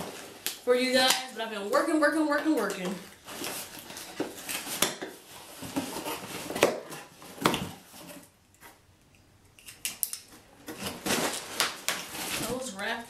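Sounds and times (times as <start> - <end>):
cardboard scraping and rustling: 3.0 - 8.8, 10.6 - 13.0
knife cutting cardboard package: 3.1 - 8.3.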